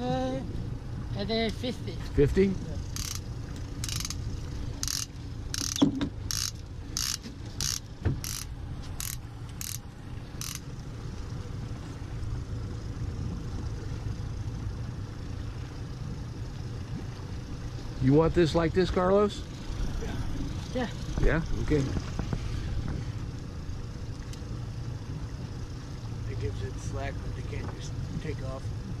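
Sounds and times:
steady low rumble: 0.0 - 29.0
fishing reel clicker ratcheting: 2.9 - 4.2, 4.8 - 9.8, 10.4 - 10.7.

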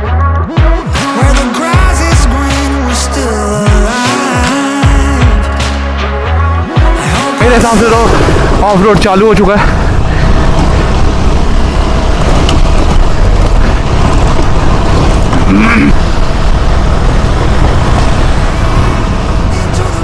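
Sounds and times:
motorcycle engine running: 6.8 - 20.0
wind rush on microphone: 7.8 - 20.0.

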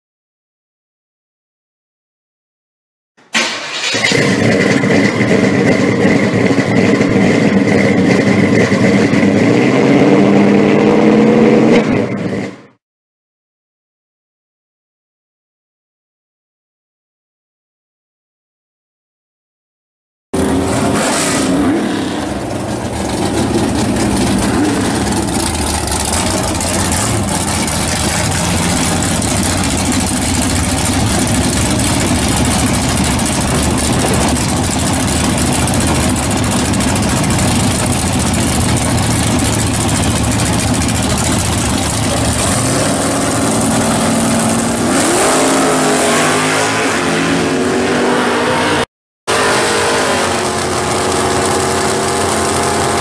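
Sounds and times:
drag car engine revving: 3.4 - 12.7, 20.4 - 53.0.

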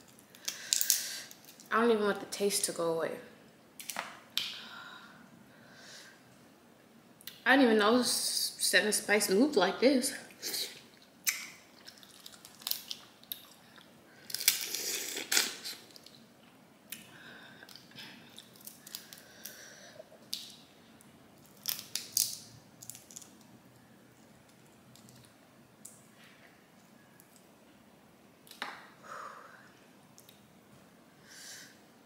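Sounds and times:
shells cracking and tearing: 0.0 - 1.7, 11.2 - 13.6, 14.2 - 16.2, 17.7 - 19.6, 21.4 - 23.5
wet squishes: 10.8 - 13.6.

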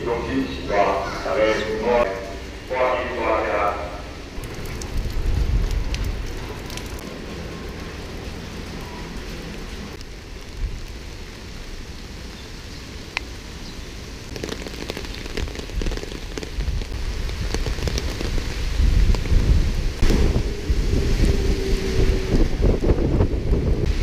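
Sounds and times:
rain falling on pavement: 2.2 - 24.0
low rumble: 18.4 - 24.0.

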